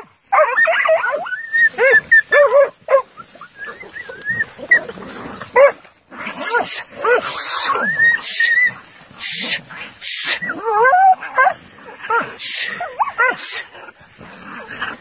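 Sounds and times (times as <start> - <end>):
dogs yelping: 0.0 - 8.9, 10.3 - 13.6
dogs whining: 0.4 - 5.8.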